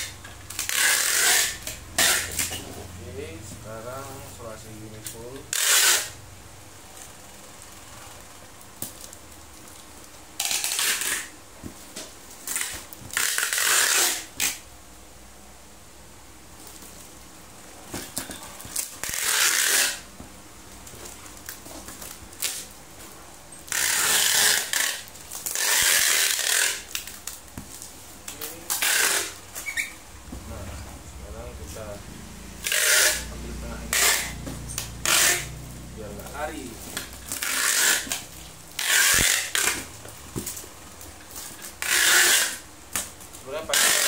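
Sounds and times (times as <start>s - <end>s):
packing tape pulled from dispenser: 0.0s - 2.6s, 5.0s - 6.2s, 10.4s - 11.4s, 12.4s - 14.6s, 18.0s - 20.1s, 23.7s - 30.0s, 32.6s - 35.6s, 36.9s - 39.9s, 41.2s - 43.1s, 43.7s - 44.0s
handling of cardboard boxes: 17.8s - 31.0s.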